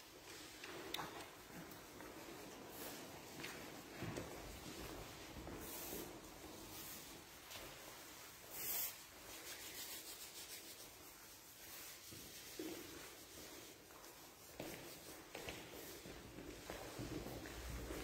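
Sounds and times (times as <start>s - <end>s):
footsteps shuffling on carpet: 11.6s - 18.0s.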